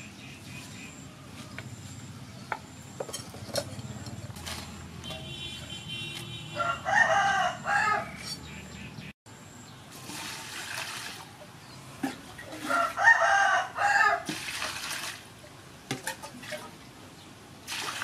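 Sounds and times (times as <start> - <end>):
rooster crowing: 6.5 - 8.2, 12.6 - 14.3.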